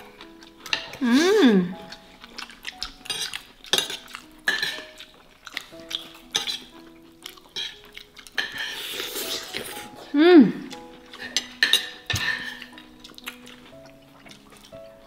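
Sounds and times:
light background music: 0:00.0 - 0:15.0
fork clinking against plate: 0:02.8 - 0:05.0, 0:05.9 - 0:07.8, 0:11.1 - 0:13.3.

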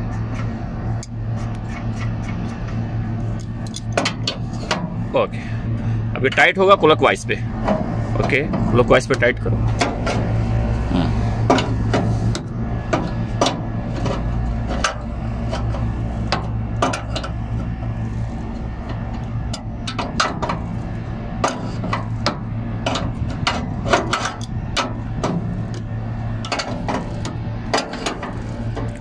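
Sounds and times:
low machinery hum: 0:00.0 - 0:29.0.

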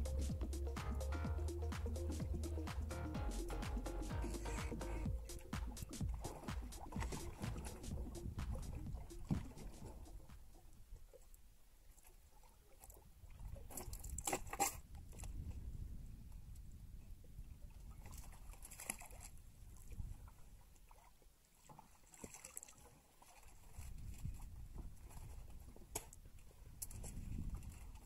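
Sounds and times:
low steady rumble: 0:00.0 - 0:10.3
fishing line rustling and splashing: 0:04.3 - 0:10.5, 0:18.0 - 0:19.4, 0:20.3 - 0:28.0.

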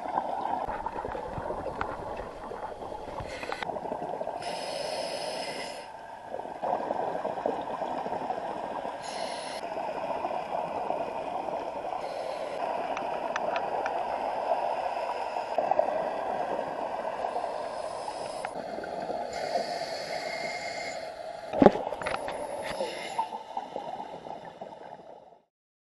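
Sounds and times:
bubbling hiss: 0:00.0 - 0:25.2
muffled underwater regulator breathing: 0:00.6 - 0:06.0, 0:09.0 - 0:09.7, 0:11.9 - 0:15.7, 0:17.2 - 0:25.1.

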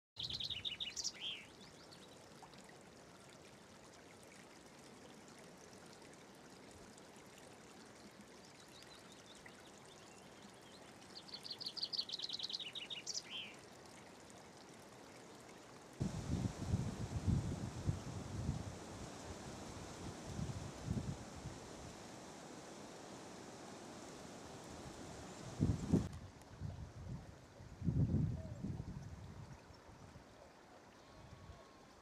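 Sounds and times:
songbird singing: 0:00.2 - 0:02.1, 0:10.0 - 0:13.6, 0:16.0 - 0:26.1
stream trickling over stones: 0:00.2 - 0:31.4.

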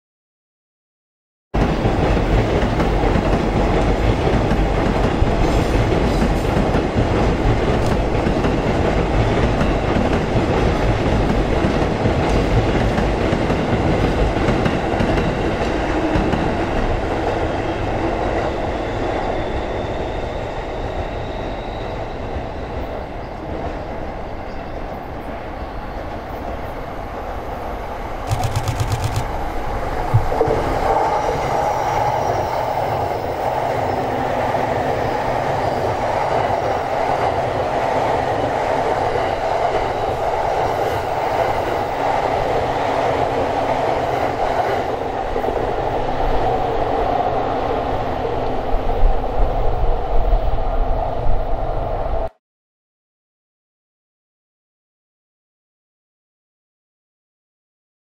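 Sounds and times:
train wheels rolling on rails: 0:01.6 - 0:21.7, 0:28.1 - 0:49.8.

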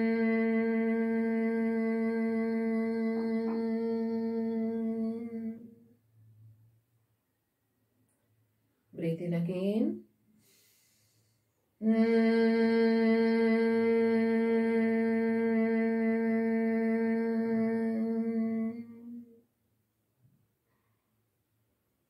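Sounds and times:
woman humming: 0:00.0 - 0:05.7, 0:11.8 - 0:19.3.

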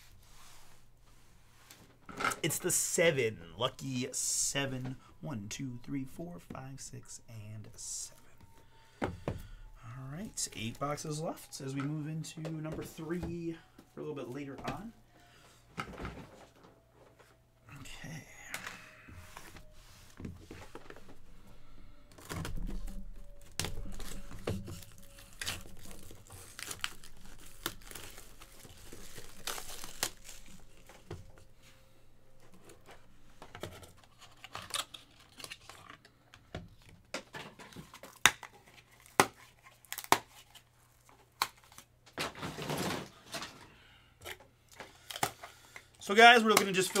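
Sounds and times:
plastic wrap crinkling: 0:22.1 - 0:31.5.

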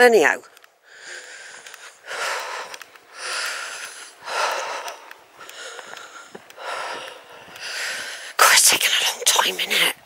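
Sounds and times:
woman breathing hard: 0:00.8 - 0:08.4.

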